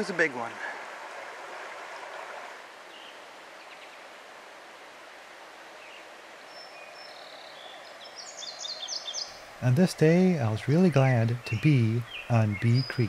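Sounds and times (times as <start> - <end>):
stream running over stones: 0.0 - 8.3
faint bird chirps: 5.8 - 9.5, 10.5 - 13.0.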